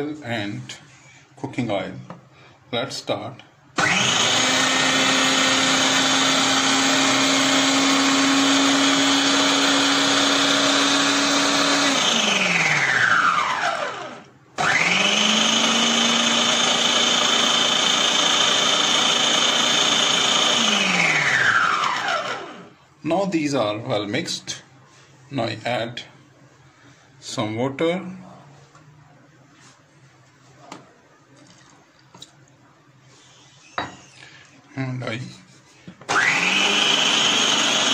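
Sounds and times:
food processor motor running: 3.8 - 22.7, 36.1 - 37.9.

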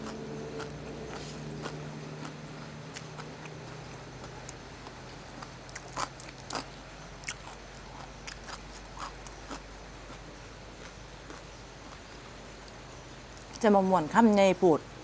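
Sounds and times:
crunchy food being eaten: 0.0 - 12.8.

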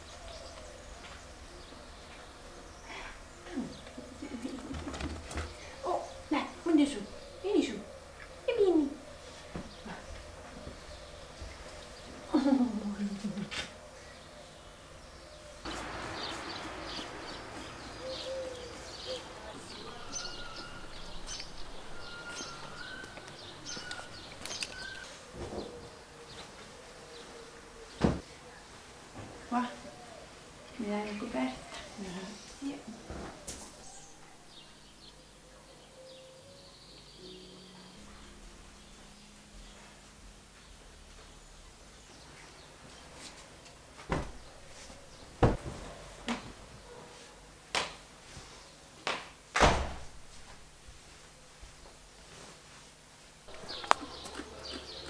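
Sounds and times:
songbirds chirping: 0.0 - 49.1, 50.7 - 55.0
thin whistled bird notes: 20.0 - 25.2.

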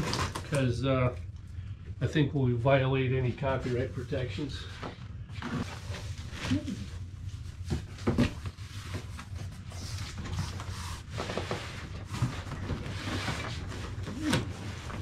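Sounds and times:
cardboard rustling and scraping: 3.4 - 15.0.

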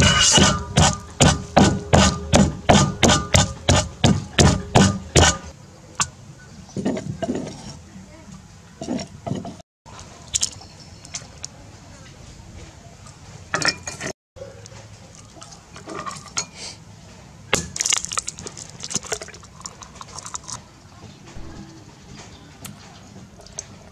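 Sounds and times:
spoon scraping metal pan: 0.0 - 1.1
pestle pounding in mortar: 0.0 - 5.5.

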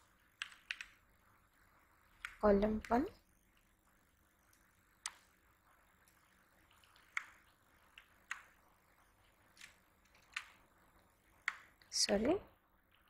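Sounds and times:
faint room hiss: 0.0 - 13.0
keyboard and mouse clicks: 0.1 - 1.0, 2.1 - 3.1, 4.5 - 5.4, 6.0 - 10.8, 11.4 - 12.3.

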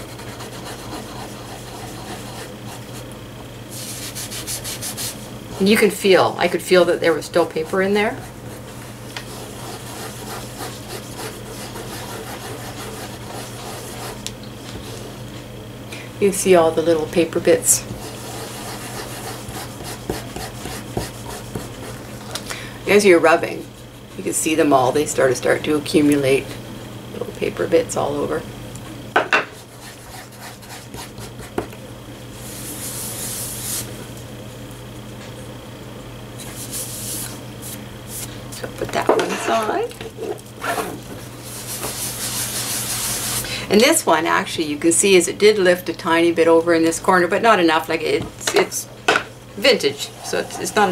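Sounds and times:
fingertips rubbing paper: 0.0 - 3.0, 3.7 - 5.2, 8.0 - 14.2, 18.0 - 22.0, 29.7 - 31.6, 41.4 - 43.4.

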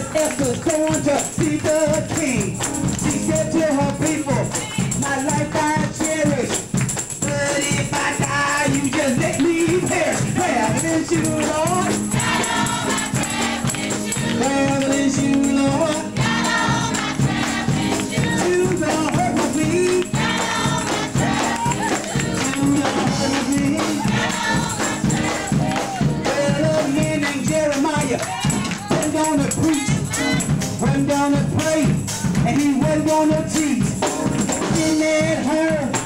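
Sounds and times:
voices singing along: 0.0 - 6.5, 7.2 - 33.7
steady rhythmic beat: 0.0 - 36.0
lead singer on microphone: 13.9 - 17.3, 17.9 - 36.0.

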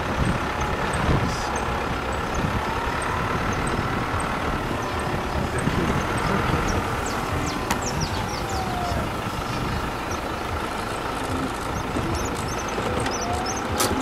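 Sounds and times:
vehicle rumble and wind noise: 0.0 - 14.0
high-pitched bird chirps: 2.3 - 10.5, 11.3 - 14.0.

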